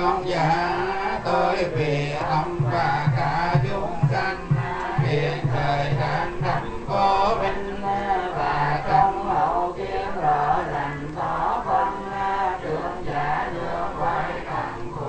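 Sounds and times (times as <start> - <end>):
group chanting in unison: 0.0 - 15.0.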